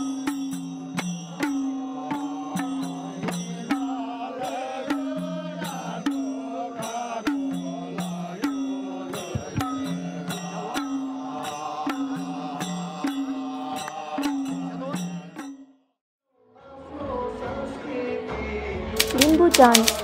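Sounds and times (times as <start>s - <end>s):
men singing together: 1.3s - 15.5s, 16.6s - 19.6s
hand drums beating: 8.4s - 10.9s.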